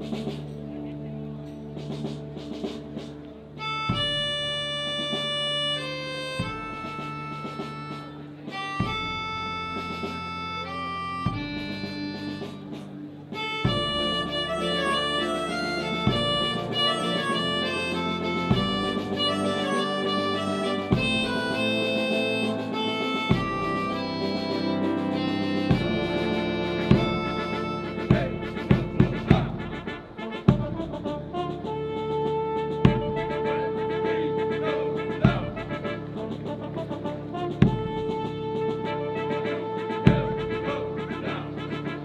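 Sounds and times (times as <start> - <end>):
military fanfare band playing: 0.0 - 42.0.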